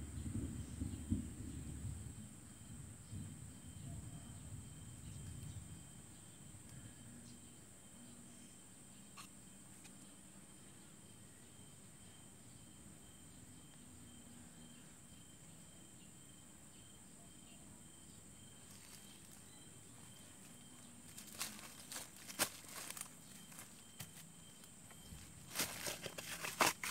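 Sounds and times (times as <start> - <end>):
insect chirring: 0.2 - 26.9
sharp crackles: 20.4 - 24.2.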